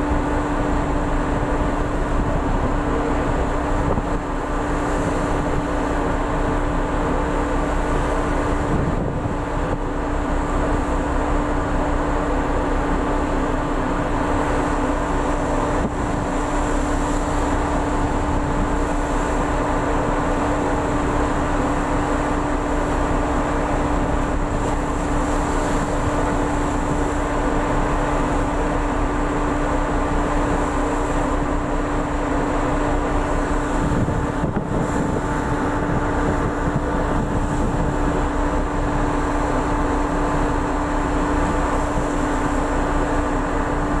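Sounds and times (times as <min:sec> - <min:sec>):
ship engines humming: 0:00.0 - 0:44.0
water rushing along hull: 0:00.0 - 0:44.0.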